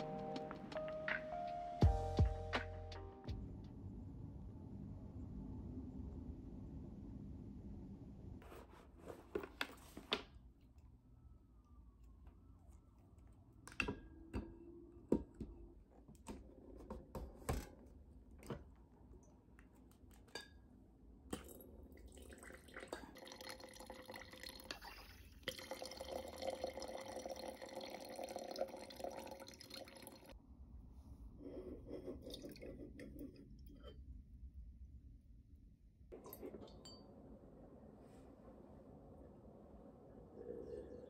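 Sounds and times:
wine pouring into glass: 0:22.0 - 0:30.4.

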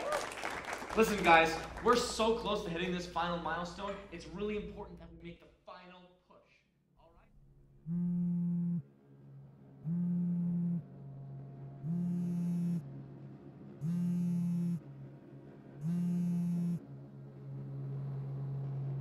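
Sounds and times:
phone vibrating buzz: 0:07.8 - 0:08.9, 0:09.8 - 0:11.2, 0:11.8 - 0:12.9, 0:13.8 - 0:15.0, 0:15.8 - 0:17.0.

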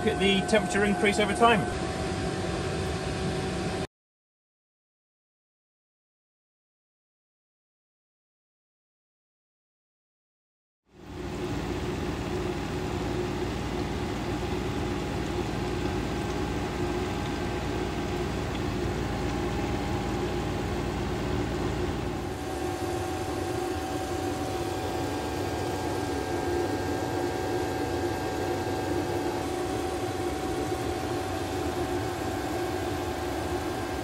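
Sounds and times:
air heater humming: 0:00.0 - 0:03.9, 0:10.9 - 0:34.0.

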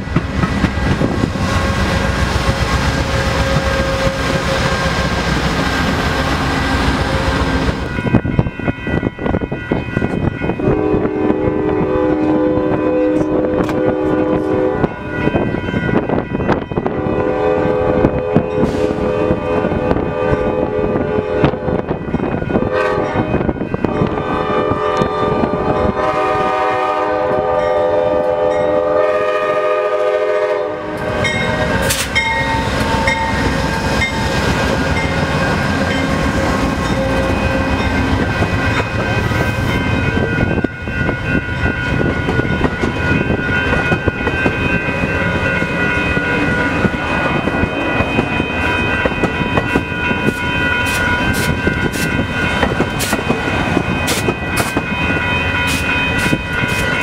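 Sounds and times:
train wheels clattering: 0:00.0 - 0:06.2, 0:31.2 - 0:57.0
locomotive horn: 0:01.5 - 0:05.1, 0:10.6 - 0:15.2, 0:16.8 - 0:21.9, 0:22.6 - 0:38.8.

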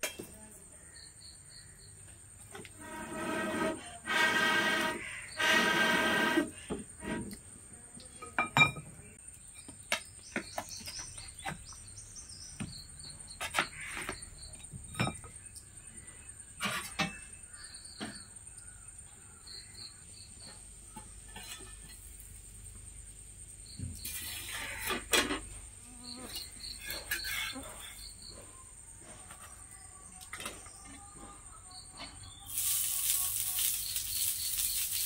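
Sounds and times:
high insect drone: 0:21.1 - 0:28.9, 0:31.1 - 0:35.0.

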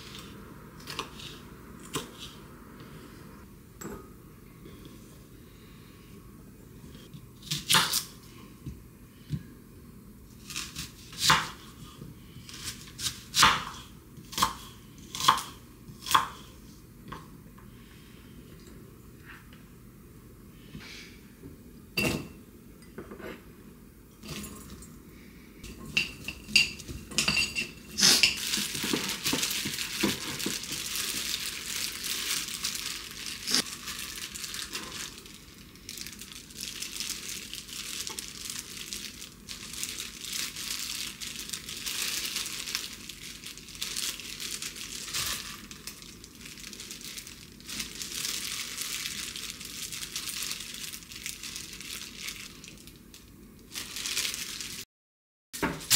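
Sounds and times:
plastic gloves crinkling: 0:27.8 - 0:54.8.

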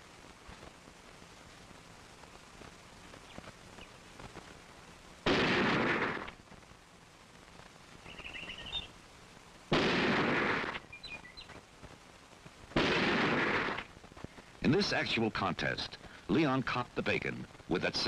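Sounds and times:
rifle shots: 0:05.2 - 0:06.3, 0:09.7 - 0:10.8, 0:12.8 - 0:13.9.

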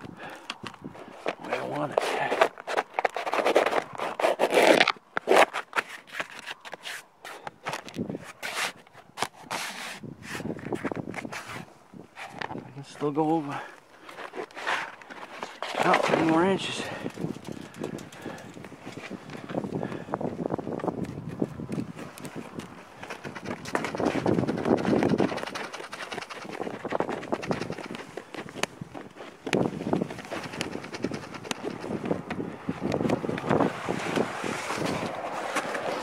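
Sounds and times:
roofing sheet scraping on wood: 0:01.4 - 0:07.4, 0:08.1 - 0:17.1, 0:33.6 - 0:36.0.

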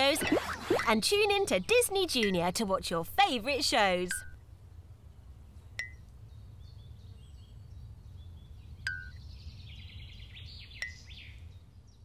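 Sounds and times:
short blips: 0:00.0 - 0:01.4
birdsong chirps: 0:04.1 - 0:12.0.

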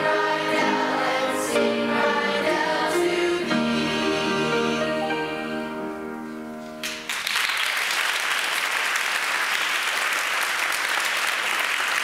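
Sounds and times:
choir holding a chord: 0:00.0 - 0:06.5
audience applause: 0:06.8 - 0:12.0.

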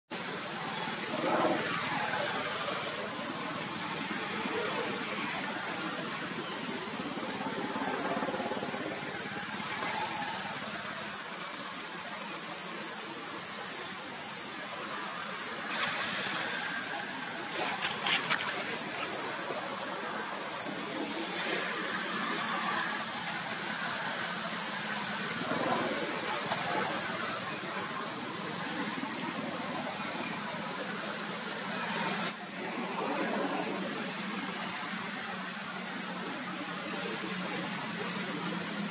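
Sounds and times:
steady high-pitched hiss: 0:00.1 - 0:38.9.

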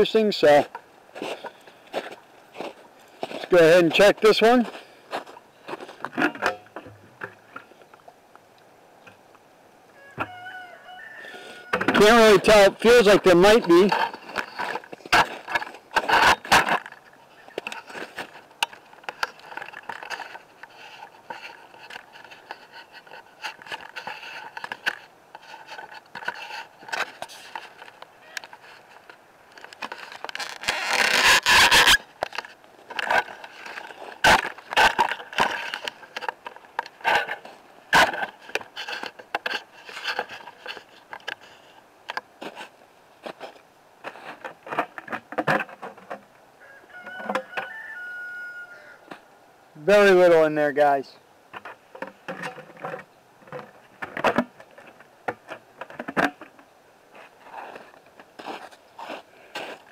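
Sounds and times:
rustling: 0:00.0 - 0:08.0, 0:11.3 - 0:48.0, 0:49.8 - 0:59.9
footsteps in snow and leaves: 0:01.1 - 0:06.1, 0:57.1 - 0:59.9.

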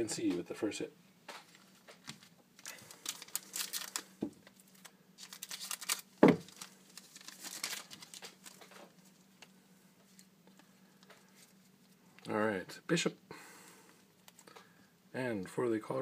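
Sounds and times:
foil wrapper crinkling: 0:01.5 - 0:12.0
scissors cutting foil: 0:05.2 - 0:06.1.

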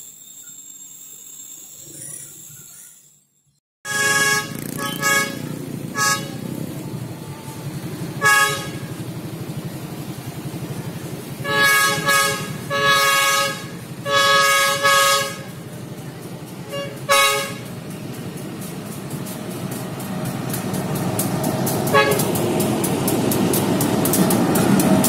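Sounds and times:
locomotive air horn blasts: 0:03.8 - 0:06.7, 0:07.4 - 0:09.1, 0:11.4 - 0:15.7, 0:16.6 - 0:17.8, 0:21.9 - 0:22.3
low engine rumble: 0:03.9 - 0:25.0.

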